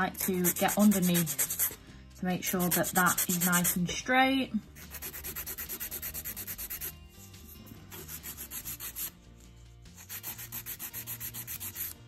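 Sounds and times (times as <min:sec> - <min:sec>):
nail file rubbing on nail: 0:00.0 - 0:01.8, 0:02.5 - 0:03.8, 0:04.8 - 0:09.1, 0:09.9 - 0:12.0.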